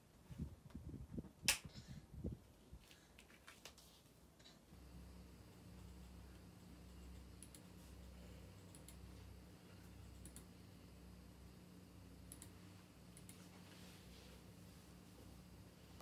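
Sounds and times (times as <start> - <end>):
low electrical hum: 0.0 - 16.0
computer mouse clicks: 7.1 - 7.7, 8.6 - 9.1, 10.1 - 10.6, 12.3 - 13.5.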